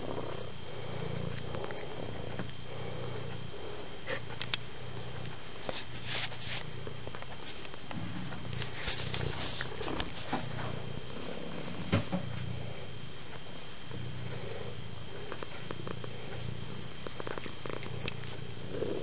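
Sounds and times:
cat purring: 0:00.0 - 0:19.0.

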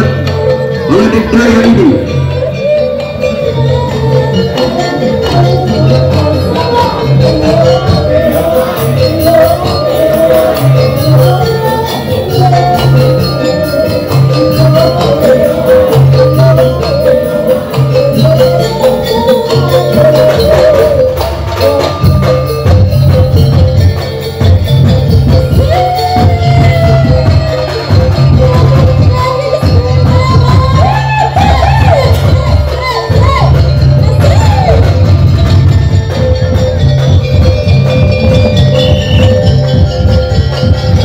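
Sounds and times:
jingling percussion: 0:00.0 - 0:41.0
wavering melody line: 0:00.0 - 0:41.0
deep drum beats: 0:14.1 - 0:41.0.

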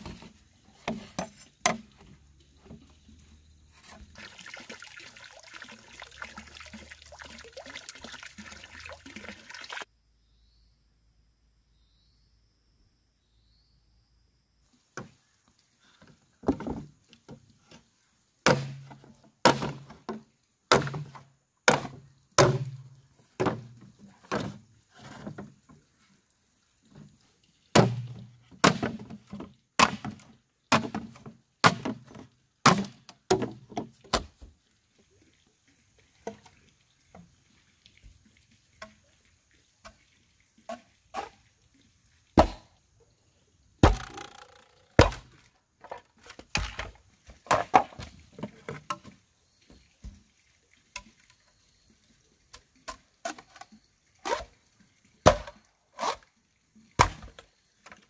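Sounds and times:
machete chopping hollow bamboo: 0:18.4 - 0:23.6, 0:27.7 - 0:29.2, 0:29.8 - 0:34.4, 0:42.4 - 0:42.7, 0:43.8 - 0:45.4, 0:55.2 - 0:56.2, 0:57.0 - 0:57.4.

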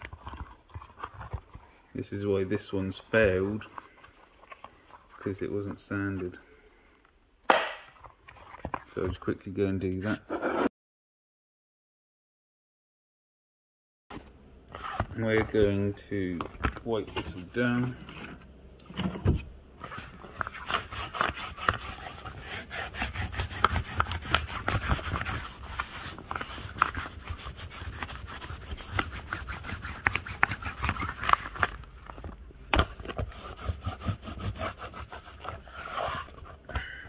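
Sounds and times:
hand rubbing boat fabric: 0:19.8 - 0:31.4, 0:33.3 - 0:36.6.

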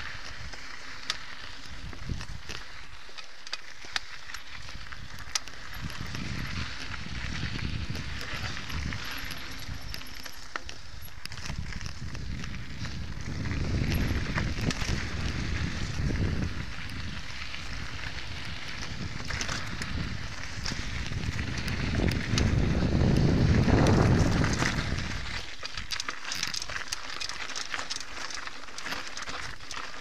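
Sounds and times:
bike clicks and rattles: 0:00.0 - 0:30.0
bike tyres on dirt: 0:00.0 - 0:30.0.

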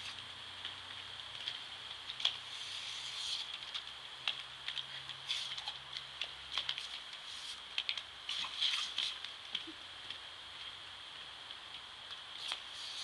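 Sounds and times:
sprinkler jet hissing: 0:02.2 - 0:03.6, 0:05.2 - 0:05.8, 0:06.5 - 0:09.4, 0:12.4 - 0:13.0.

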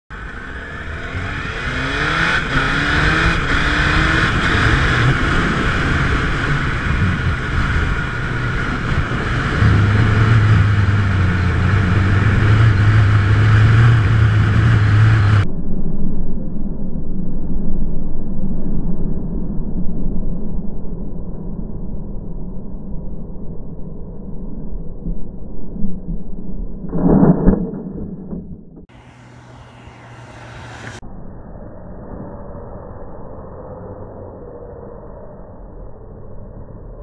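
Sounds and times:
motorcycle engine accelerating: 0:00.1 - 0:15.4, 0:27.0 - 0:31.0.

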